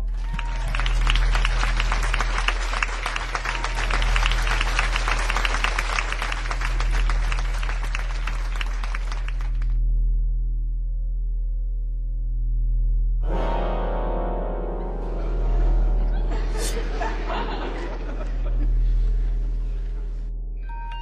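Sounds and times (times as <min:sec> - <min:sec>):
audience applause: 0:00.0 - 0:09.8, 0:15.2 - 0:20.2
low steady drone: 0:00.0 - 0:21.0.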